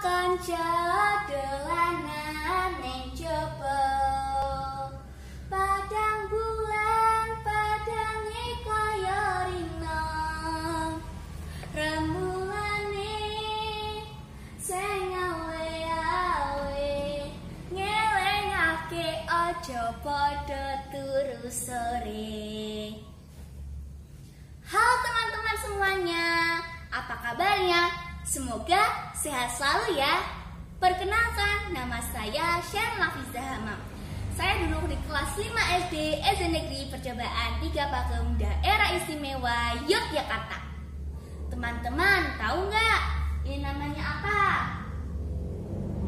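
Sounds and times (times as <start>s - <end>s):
girl singing: 0.0s - 23.2s, 24.7s - 30.2s, 30.8s - 40.6s.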